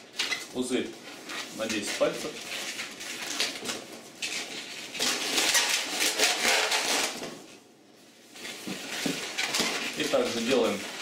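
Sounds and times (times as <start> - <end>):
balloon squeaking and rubbing: 4.2 - 7.2, 8.5 - 11.0.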